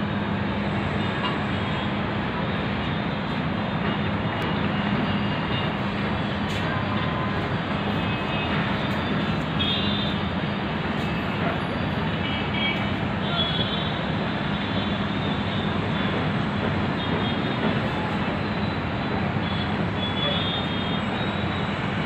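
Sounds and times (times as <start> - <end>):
road traffic noise: 0.0 - 22.0.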